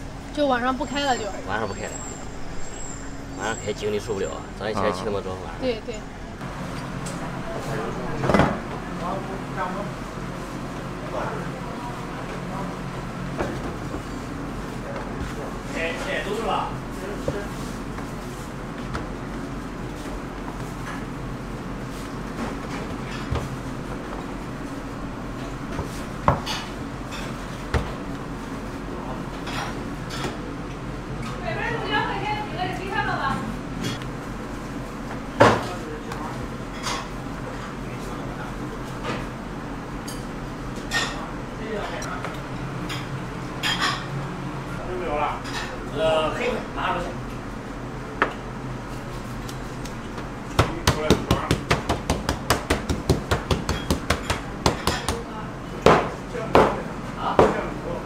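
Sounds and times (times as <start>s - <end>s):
steady background hum: 0.0s - 58.0s
spatula knocking on steel worktable: 50.6s - 55.2s.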